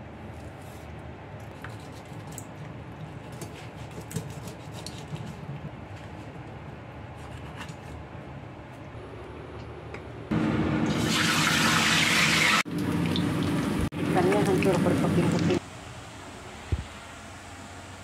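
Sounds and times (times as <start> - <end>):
knife cutting and scraping fish: 0.3 - 8.1.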